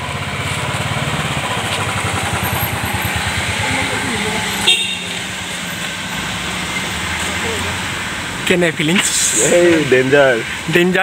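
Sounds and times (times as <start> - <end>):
motorcycle engine pulsing: 0.0 - 5.4
car engine passing: 0.0 - 11.0.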